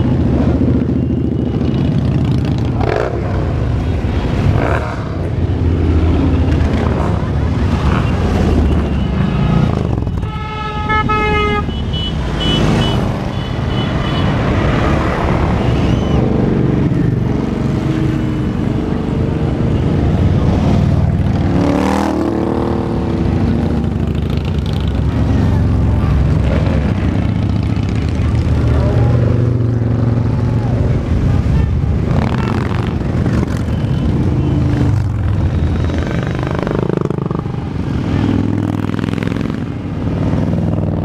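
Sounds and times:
motorcycle engines rumbling: 0.0 - 41.0
vehicle horn: 10.2 - 14.3.

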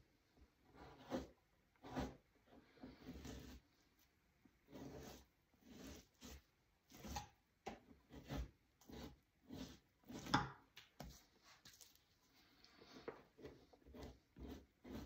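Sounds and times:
knife scraping hide: 0.7 - 3.7, 4.6 - 7.4, 8.0 - 10.4, 12.9 - 15.0.

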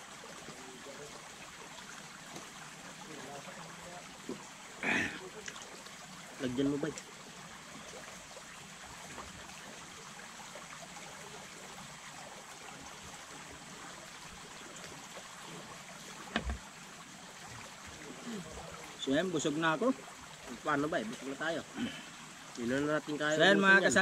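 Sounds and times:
creek flowing: 0.0 - 24.0
single knock: 16.3 - 16.6.

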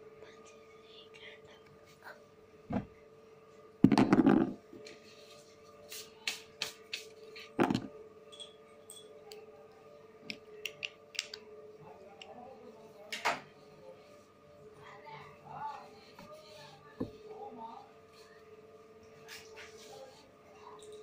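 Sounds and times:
faint hum: 0.0 - 21.0
rough knock on table: 7.6 - 7.9.

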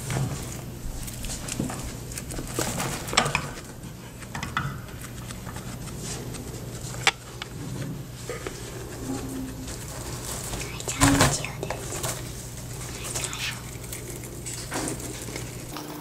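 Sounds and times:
rustling through hay and paper: 0.0 - 4.2, 5.2 - 16.0
guinea pig crunching hay: 0.0 - 16.0.

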